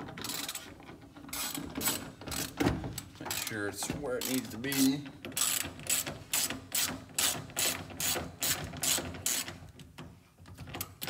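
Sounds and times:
ratchet wrench clicking: 3.3s - 3.6s, 4.2s - 9.5s.

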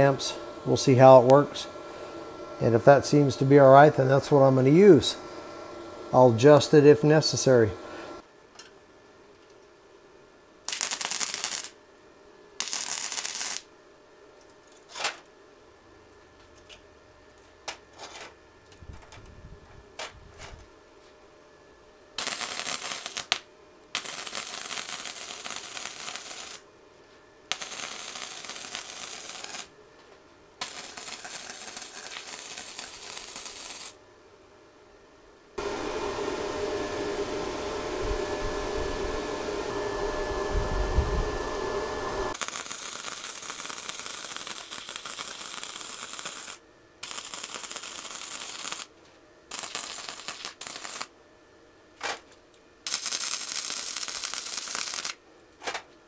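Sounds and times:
welding arc crackling: 0.0s - 1.7s, 10.7s - 11.8s, 12.6s - 13.7s, 22.2s - 26.7s, 27.5s - 29.7s, 30.6s - 34.0s, 42.3s - 48.9s, 49.5s - 51.1s, 52.8s - 55.2s.

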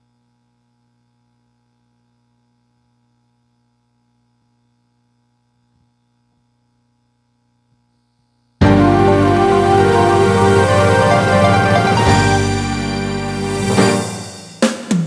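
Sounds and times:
faint electrical hum: 0.0s - 9.9s.

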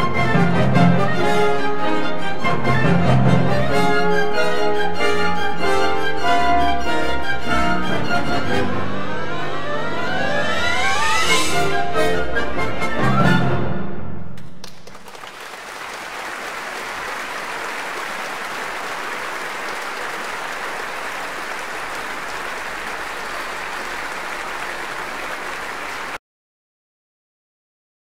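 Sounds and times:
audience applauding: 14.4s - 26.2s.

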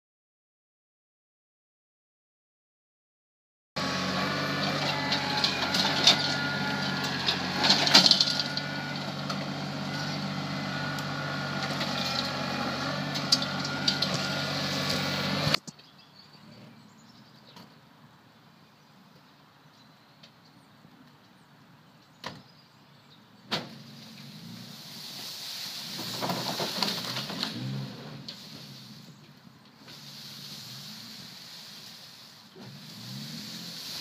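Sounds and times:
tractor diesel engine under load: 3.8s - 15.7s, 23.6s - 34.0s.

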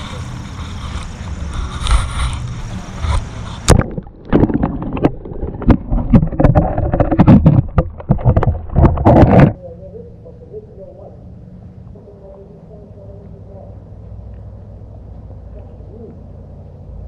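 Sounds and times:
wind rumble on microphone: 0.0s - 9.7s
dull knocks underwater: 3.6s - 9.6s.

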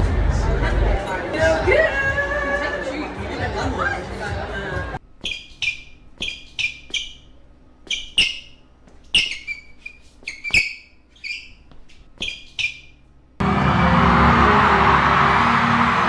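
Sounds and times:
sneakers squeaking on wooden floor: 5.0s - 13.4s.

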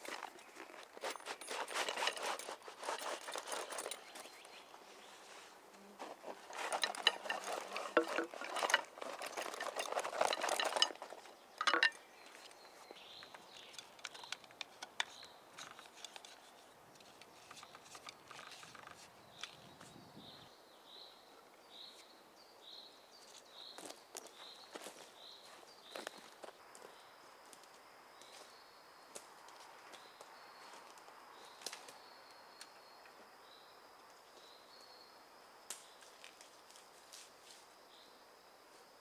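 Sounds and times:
rustling and light clacking: 0.0s - 20.0s.

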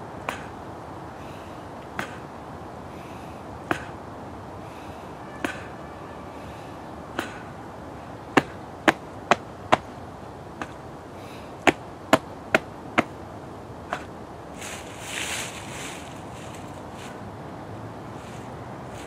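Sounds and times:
hands slapping chest and belly: 0.2s - 0.6s, 1.8s - 2.3s, 3.6s - 4.0s, 5.4s - 5.7s, 7.2s - 7.5s, 8.4s - 9.9s, 10.6s - 10.8s, 11.6s - 13.2s, 13.9s - 14.1s.

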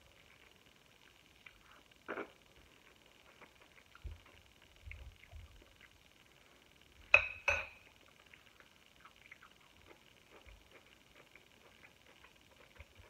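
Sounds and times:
fork clinking on ceramic plate: 7.2s - 7.9s.

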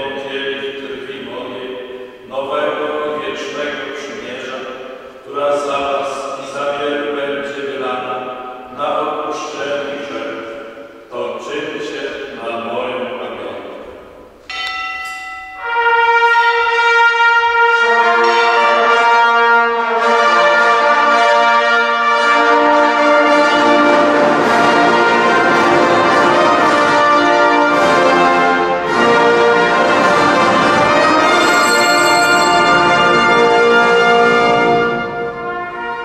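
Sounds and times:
brass band playing chords: 15.6s - 36.0s.

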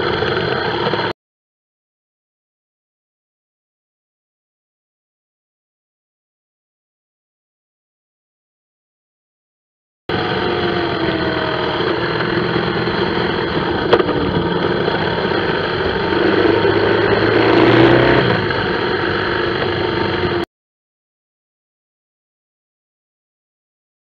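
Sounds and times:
motorcycle engine running: 0.0s - 1.1s, 10.1s - 20.5s
road and wind noise: 0.0s - 1.1s, 10.1s - 20.4s.

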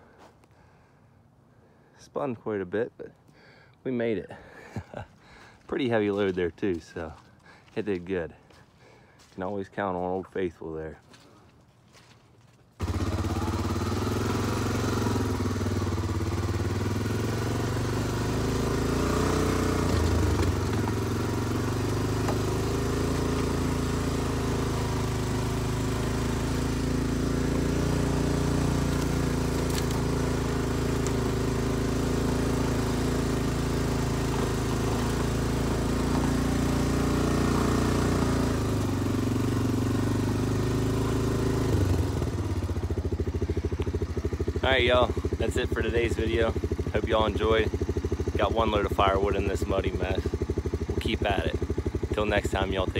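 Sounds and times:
atv engine running: 12.7s - 52.9s.

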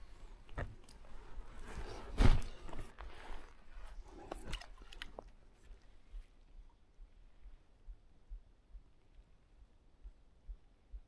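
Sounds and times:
loud thump: 2.2s - 2.5s.

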